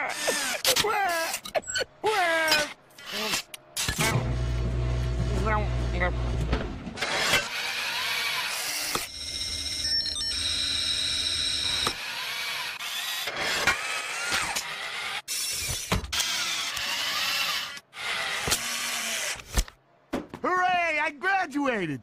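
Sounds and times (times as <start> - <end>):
machinery whirring and clanking: 3.0 - 9.7.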